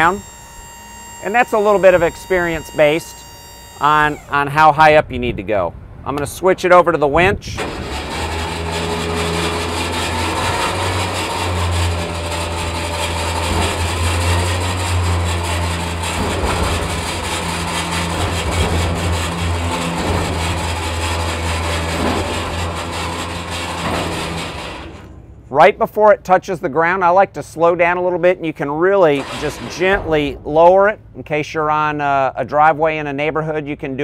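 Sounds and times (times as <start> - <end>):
hydraulic winch whine: 0.0 - 4.8, 7.5 - 25.2, 29.0 - 30.5
diesel truck engine running: 7.5 - 25.2.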